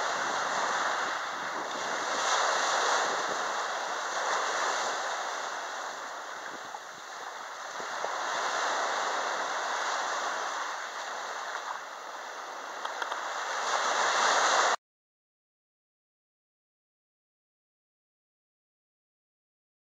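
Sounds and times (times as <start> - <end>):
small waves washing on sand: 0.0 - 14.8.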